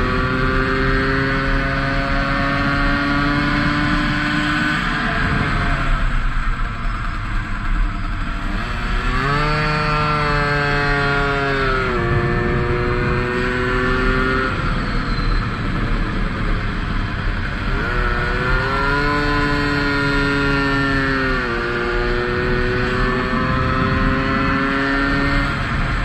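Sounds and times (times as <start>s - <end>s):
moped engine revving: 0.0s - 26.0s
wind rush: 11.8s - 19.1s, 22.2s - 26.0s.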